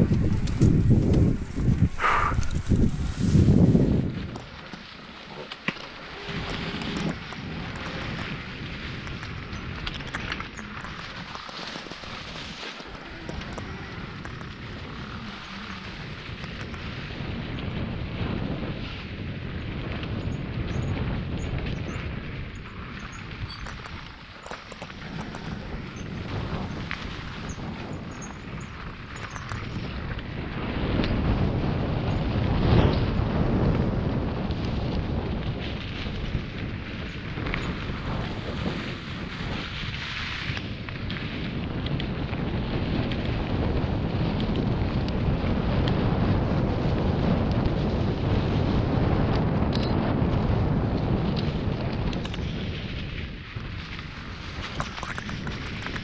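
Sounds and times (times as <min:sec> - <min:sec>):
tyres crunching through leaves: 0:00.0 - 0:08.7
bike rattling: 0:00.0 - 0:56.0
wind rumble on microphone: 0:00.0 - 0:56.0.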